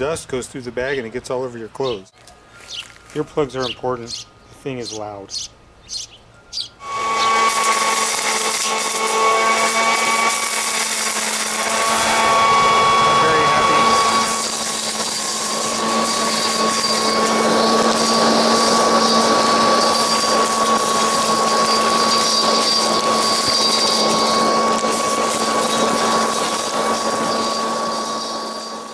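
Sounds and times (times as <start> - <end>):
leaf blower vacuum running: 6.8 - 28.9.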